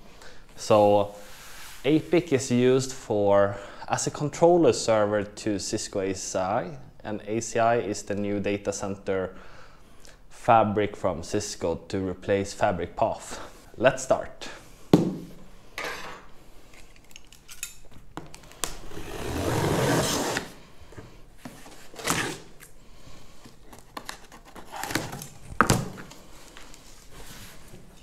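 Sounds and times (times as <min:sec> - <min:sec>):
blade cutting packing tape: 0:18.7 - 0:20.6.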